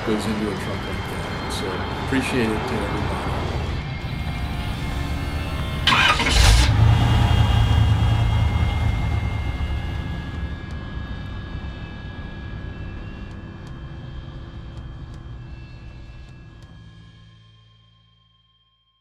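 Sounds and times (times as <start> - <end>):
pickup truck engine starting: 4.1 - 10.5.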